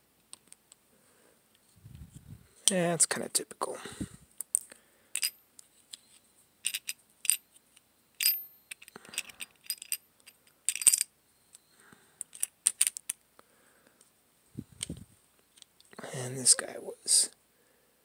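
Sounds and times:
small parts clicking and scraping: 4.4 - 13.2, 14.8 - 16.0.

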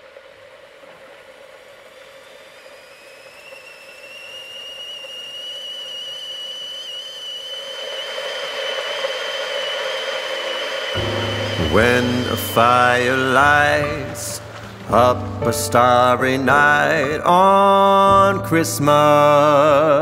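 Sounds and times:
kettle steam hissing: 0.0 - 15.0
kettle whistle rising in pitch: 0.9 - 14.8.

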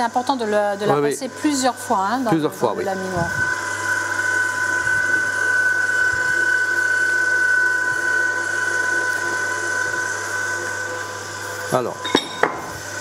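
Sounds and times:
pasta machine motor whining: 0.0 - 13.0.

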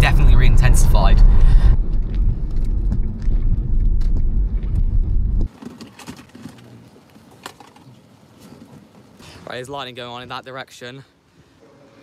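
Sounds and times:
faint hum: 0.0 - 5.5
car engine and tyre rumble: 0.0 - 5.7.

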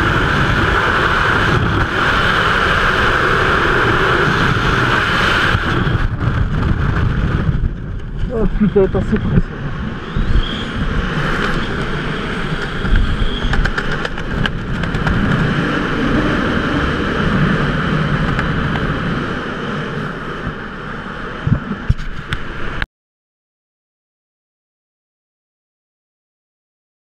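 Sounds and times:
wind buffeting microphone: 0.0 - 22.8
scattered clicks: 12.5 - 15.4.

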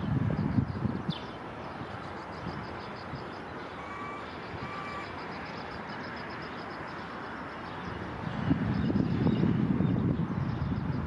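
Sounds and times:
reversing alarm beeps: 3.0 - 7.0.

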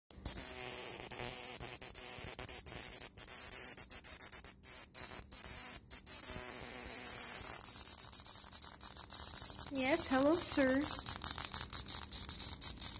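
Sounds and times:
cicada distress buzz: 0.1 - 12.9.

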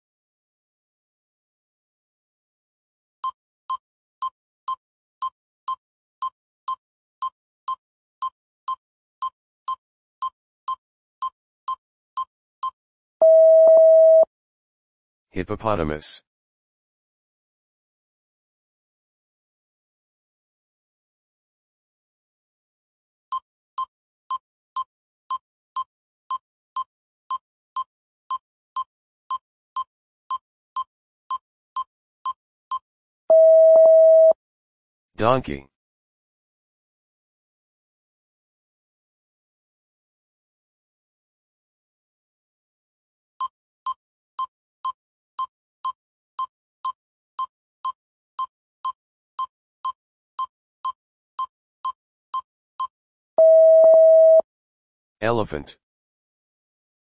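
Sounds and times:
loud steady beep: 12.6 - 14.3, 33.3 - 34.4, 52.8 - 54.4
clock-like ticks: 31.8 - 32.8.

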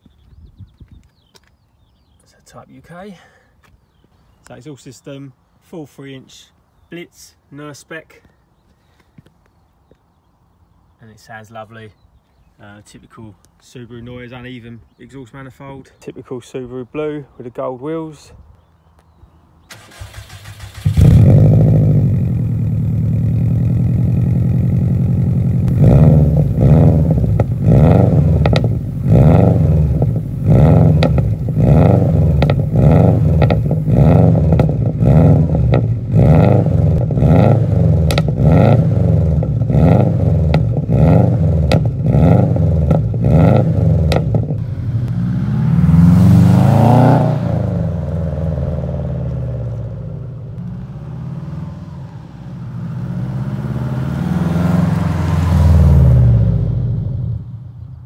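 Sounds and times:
car engine starting and revving: 19.7 - 57.9.

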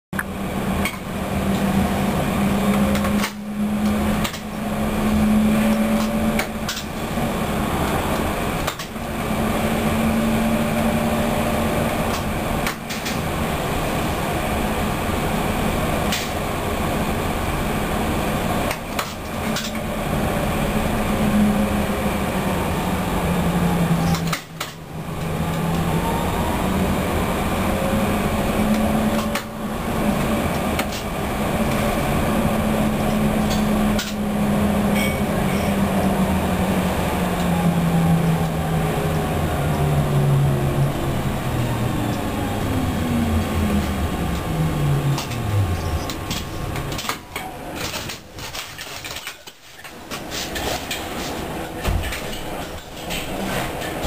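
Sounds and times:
low motor hum: 0.2 - 47.4
light-rail wheels on track: 0.2 - 54.0
sharp rail clicks: 33.4 - 34.2.

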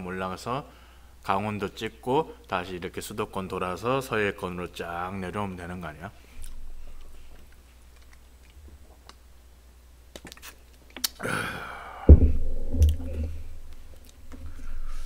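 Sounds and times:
breathy sigh: 11.2 - 12.2.

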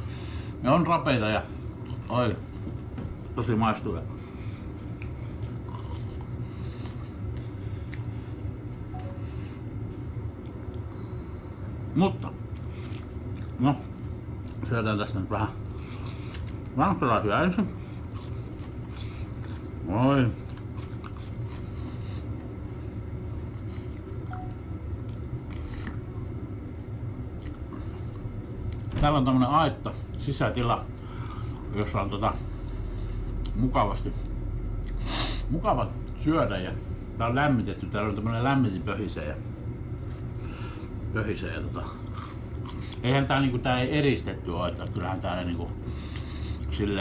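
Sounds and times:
eating and drinking noises: 0.0 - 37.2, 37.8 - 47.0
heater humming: 0.0 - 47.0
faint eating clicks: 12.5 - 14.8.

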